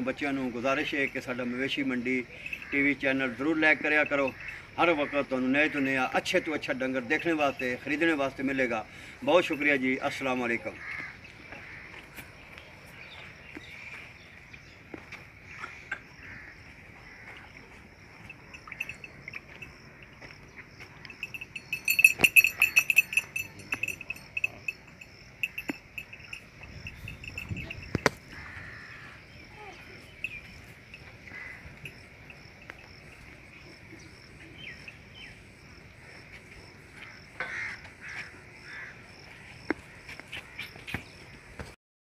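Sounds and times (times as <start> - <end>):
insects chirping: 0.0 - 41.8
faint pulsing chirp: 17.6 - 28.1, 28.7 - 36.4.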